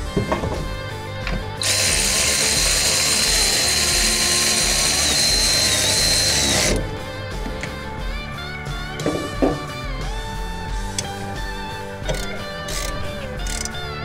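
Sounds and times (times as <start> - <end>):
electric ratchet whining: 1.6 - 6.9, 11.9 - 13.9.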